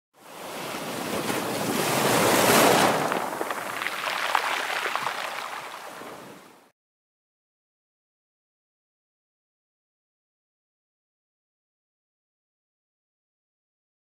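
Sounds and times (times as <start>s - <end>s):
rushing water: 0.4s - 6.7s
water splashing and dripping: 2.0s - 6.6s.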